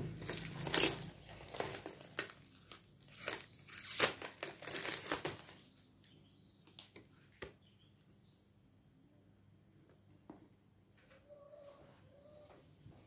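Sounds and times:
plastic packaging crinkling: 0:00.1 - 0:06.9.

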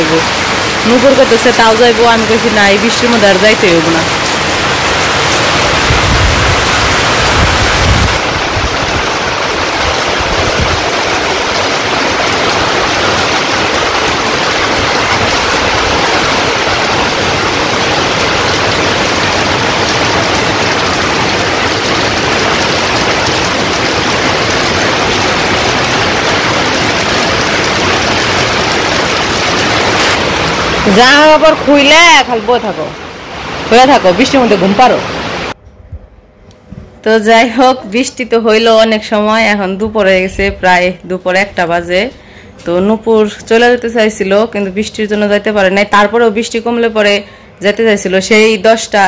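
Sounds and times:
water running off roof edges: 0:00.0 - 0:31.9
heavy rain on tin roofs: 0:00.0 - 0:35.6.

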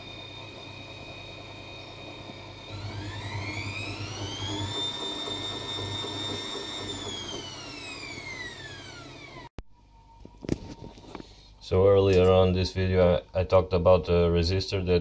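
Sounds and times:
washing machine spinning: 0:00.0 - 0:09.6.

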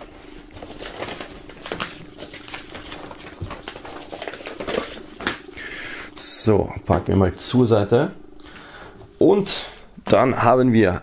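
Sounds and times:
paper poster rustling: 0:00.0 - 0:05.7.

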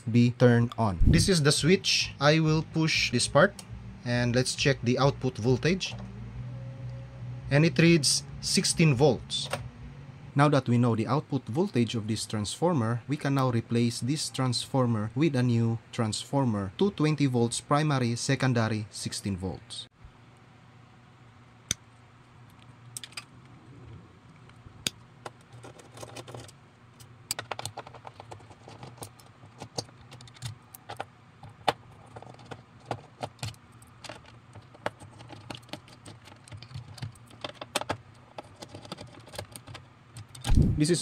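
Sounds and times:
tools clicking on metal parts: 0:25.3 - 0:40.6.

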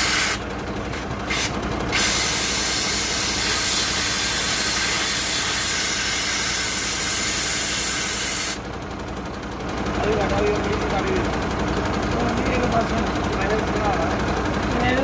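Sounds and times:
compressed air hissing from valve: 0:00.0 - 0:00.4, 0:01.3 - 0:08.6.

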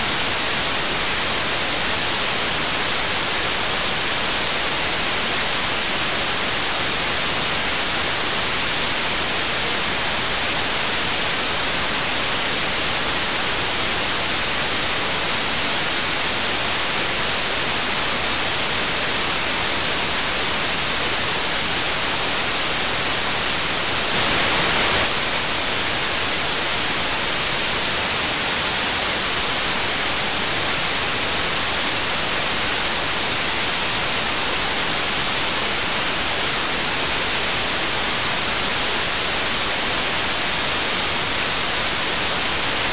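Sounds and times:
radio static hiss: 0:22.4 - 0:30.2.

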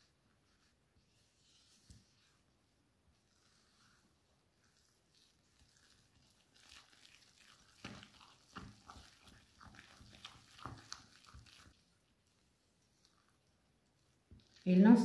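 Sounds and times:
hand whisk beating batter: 0:03.2 - 0:15.0.

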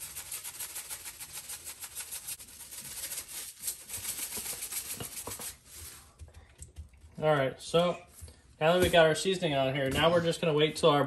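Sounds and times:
seeds rattling from shaker jar: 0:00.0 - 0:06.0.

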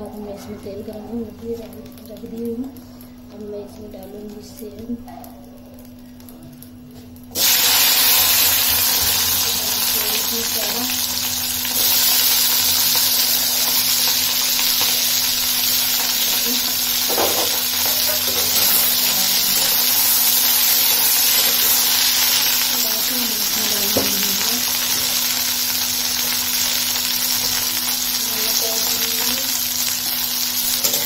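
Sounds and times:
beans sizzling in hot oil: 0:07.3 - 0:31.0.

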